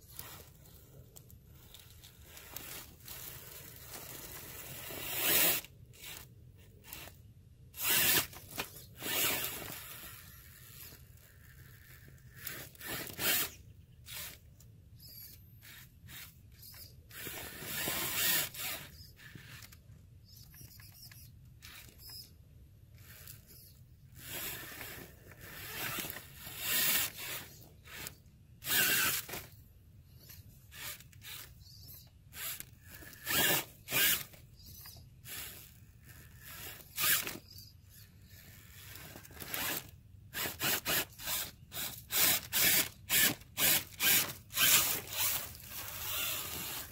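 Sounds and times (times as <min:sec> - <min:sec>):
toy truck tyres scrabbling on bark: 0:00.0 - 0:46.9.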